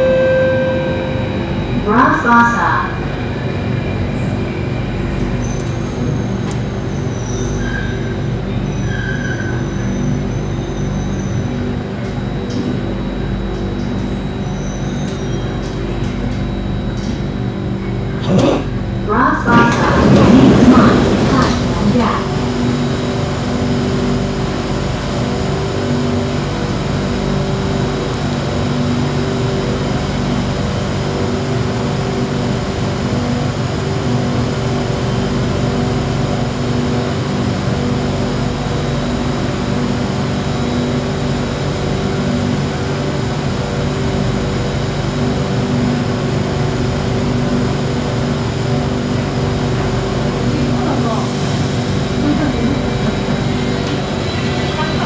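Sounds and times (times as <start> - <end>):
train machine hum: 0.0 - 55.0.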